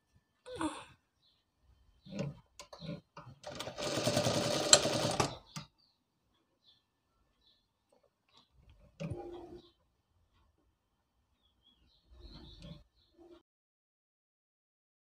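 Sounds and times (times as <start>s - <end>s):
sewing machine stitching: 2.2s - 5.4s.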